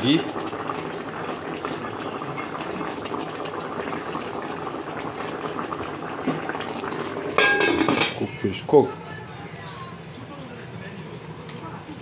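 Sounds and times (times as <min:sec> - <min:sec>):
stew bubbling in pot: 0:00.0 - 0:08.8.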